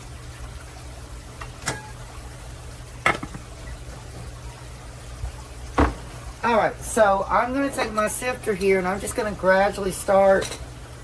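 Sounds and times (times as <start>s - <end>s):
kitchenware knocking on countertop: 3.0s - 3.5s, 5.8s - 6.0s.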